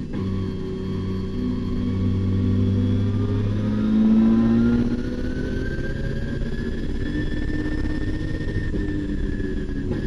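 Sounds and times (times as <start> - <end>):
car engine accelerating hard: 0.0 - 10.0.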